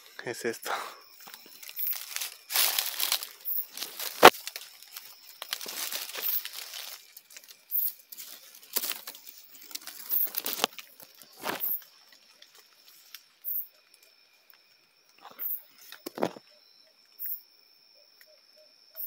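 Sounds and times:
leaves and branches rustling: 1.0s - 16.4s.

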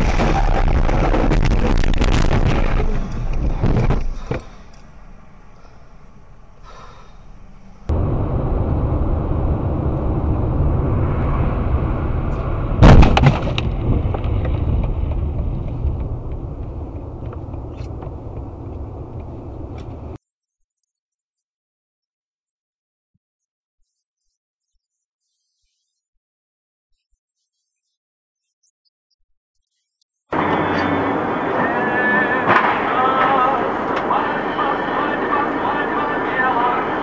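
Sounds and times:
sudden loud bang: 0.0s - 2.9s, 7.9s - 14.3s, 32.1s - 34.6s
road and wind noise inside car: 0.1s - 6.6s, 7.2s - 20.2s, 30.3s - 37.0s
loud noise with sharp cracks: 12.8s - 16.4s, 30.3s - 37.0s.

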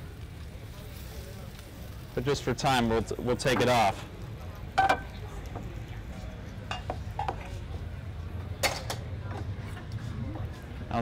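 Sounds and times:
plates and tongs clinking: 4.8s - 5.2s, 6.6s - 7.5s.

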